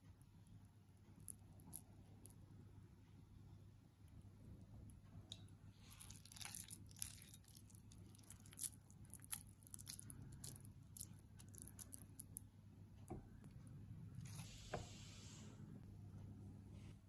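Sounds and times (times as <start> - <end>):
steady low hum: 0.0 - 17.0
hands squishing wet mixture: 5.3 - 12.4.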